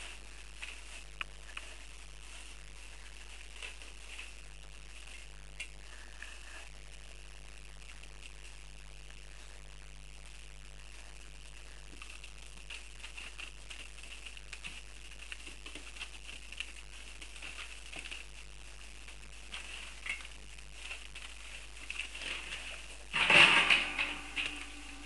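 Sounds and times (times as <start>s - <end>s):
paper rustling: 0.0s - 6.6s, 11.6s - 25.0s
puppies pattering: 10.3s - 25.0s.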